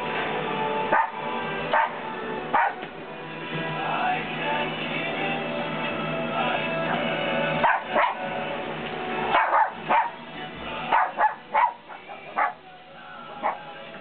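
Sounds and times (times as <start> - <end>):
background music with held tones: 0.0 - 14.0
puppies barking and yipping: 0.9 - 2.9, 6.9 - 8.3, 9.3 - 12.7, 13.4 - 13.8.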